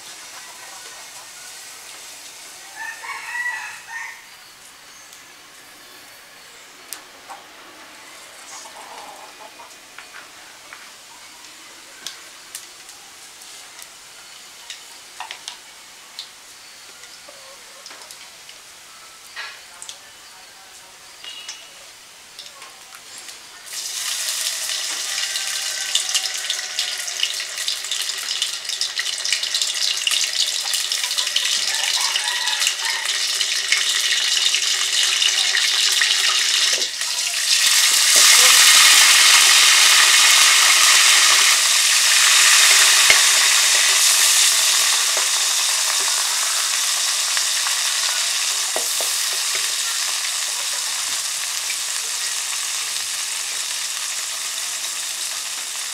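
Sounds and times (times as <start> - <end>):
paste sizzling in hot oil: 23.2 - 55.9.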